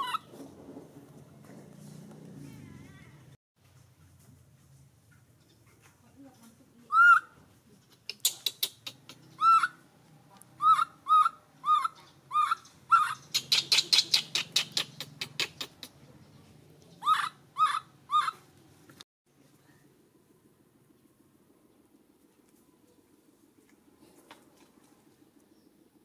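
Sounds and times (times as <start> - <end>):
baby monkey squeaking calls: 6.9 - 7.3, 8.2 - 9.8, 10.6 - 15.8, 17.0 - 18.4.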